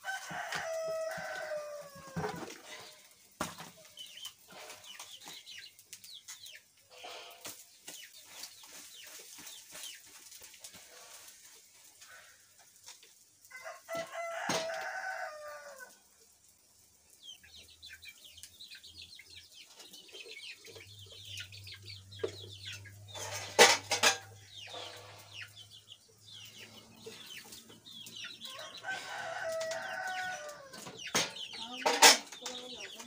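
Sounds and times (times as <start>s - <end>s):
rooster crowing: 0.0s - 2.5s, 13.5s - 16.0s, 28.4s - 30.9s
chickens clucking: 0.0s - 33.0s.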